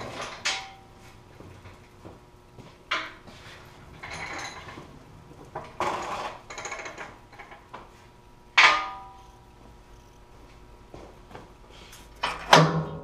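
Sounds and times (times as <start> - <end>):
metal table legs scraping concrete: 5.6 - 7.2.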